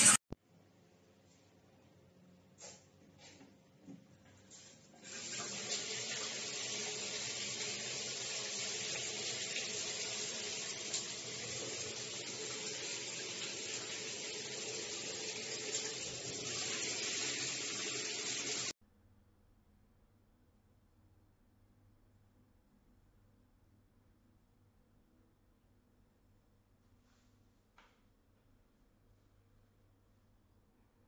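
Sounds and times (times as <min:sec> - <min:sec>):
shower water splashing on tiles: 0:04.5 - 0:18.7.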